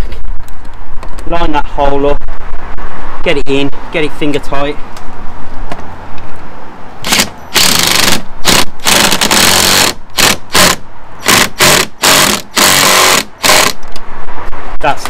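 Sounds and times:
cordless driver trigger bursts: 7.0 - 13.9.

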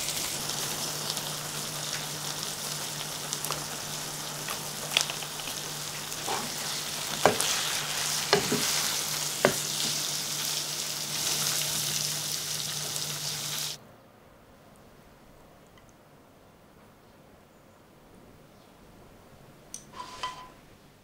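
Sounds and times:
chicken and onions sizzling in pan: 0.0 - 13.8
spatula knocking against pan: 7.2 - 7.5, 8.3 - 8.7, 9.4 - 10.0.

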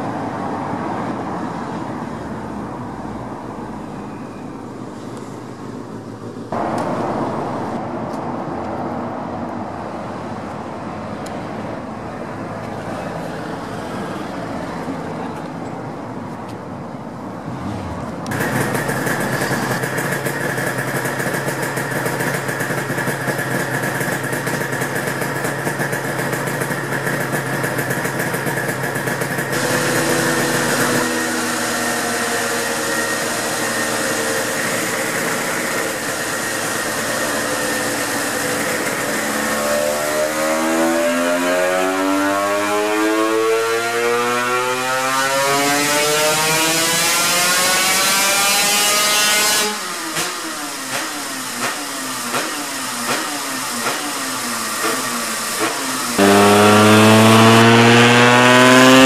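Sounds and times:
two-stroke motorcycle engine revving: 17.4 - 59.0
engine popping: 17.6 - 32.0, 54.8 - 59.0.

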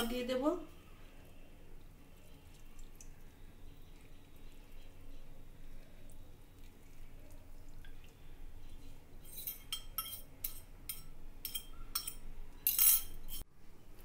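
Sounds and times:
milk trickling: 1.0 - 9.3.

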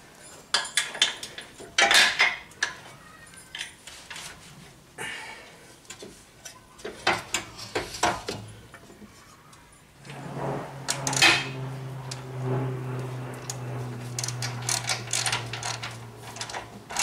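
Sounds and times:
steady mechanical hum: 0.0 - 17.0
steady low hum: 9.9 - 17.0.

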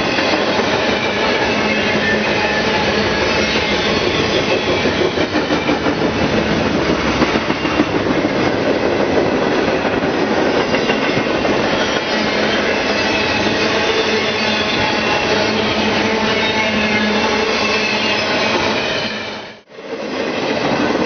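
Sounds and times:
freight train rumble and clatter: 0.0 - 21.0.

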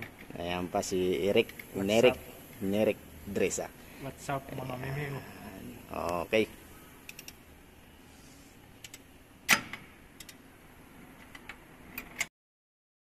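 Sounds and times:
faint workshop background: 0.0 - 12.3.

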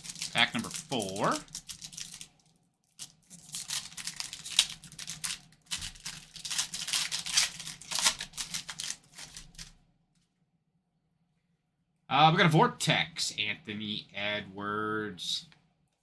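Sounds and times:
foil pack tearing and crinkling: 0.0 - 9.8.

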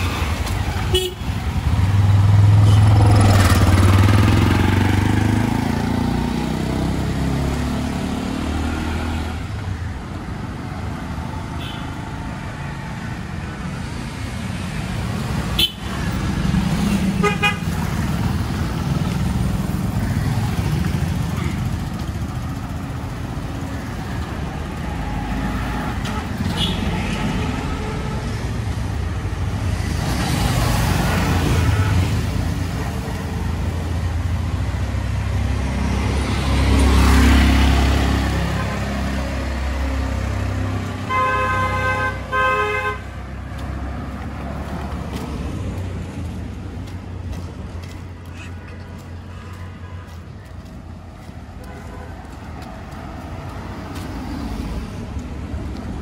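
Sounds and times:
traffic rumble: 0.0 - 56.0
vehicle passing close: 1.5 - 9.4.

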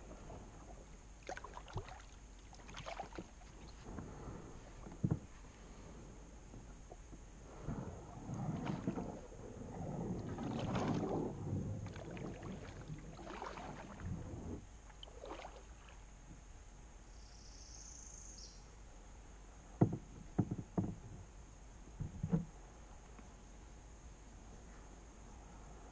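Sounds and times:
paddle splashing through water: 0.0 - 5.3, 7.6 - 16.0.

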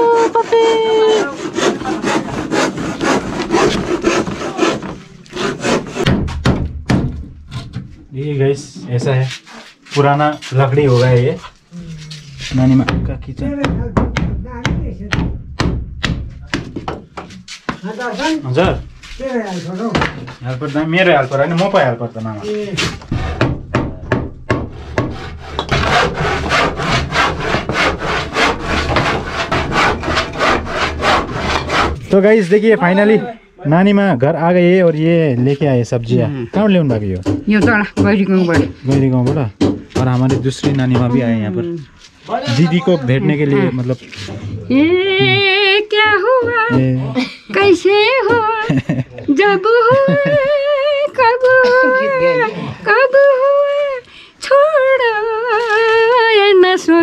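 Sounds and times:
handsaw cutting wood: 0.0 - 6.4, 24.5 - 32.2.

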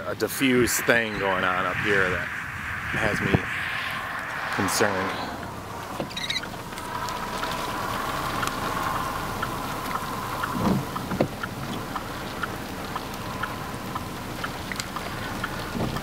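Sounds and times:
faint steady hum: 0.0 - 15.7
wind: 0.0 - 16.0
short loud rushes: 0.3 - 8.7
light ticks: 6.4 - 16.0.

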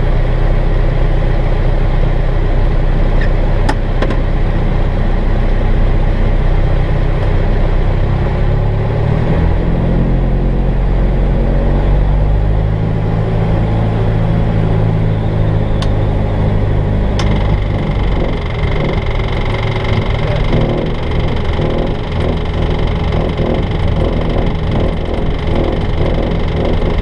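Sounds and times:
light aircraft engine and propeller: 0.0 - 27.0
steady high tone: 12.9 - 27.0.

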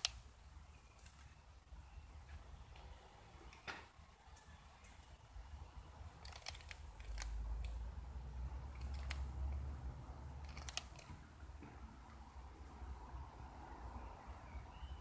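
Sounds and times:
low outdoor rumble: 0.0 - 14.4
sharp light clicks: 10.4 - 11.2.

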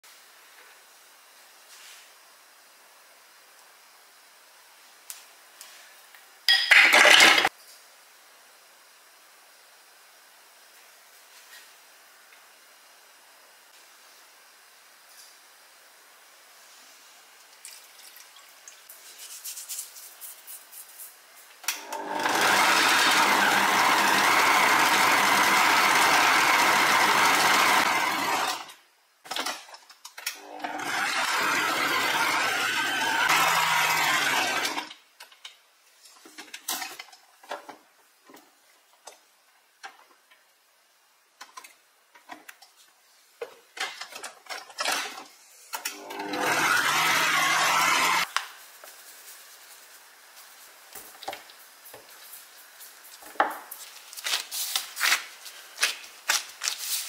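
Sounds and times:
food processor running: 21.7 - 28.8, 30.4 - 35.0, 45.8 - 48.3.

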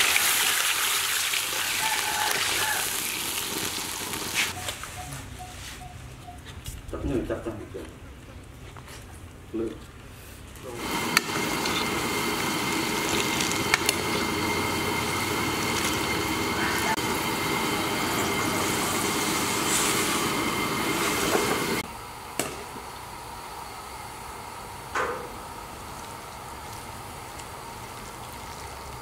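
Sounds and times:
sauce boiling and bubbling: 0.0 - 4.6, 10.6 - 29.0.

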